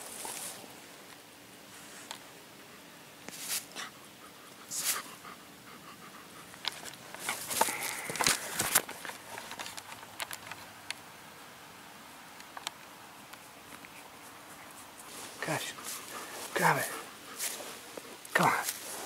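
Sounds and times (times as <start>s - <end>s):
dog panting: 3.8s - 8.0s, 13.3s - 18.2s.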